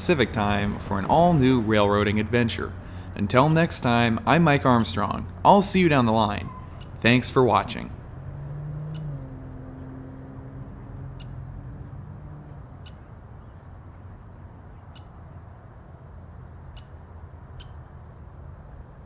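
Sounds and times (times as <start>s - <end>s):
low hum: 0.0s - 14.8s
steady low rumble: 0.0s - 14.8s
bird chirping: 6.4s - 7.0s, 8.0s - 15.6s, 16.7s - 17.8s.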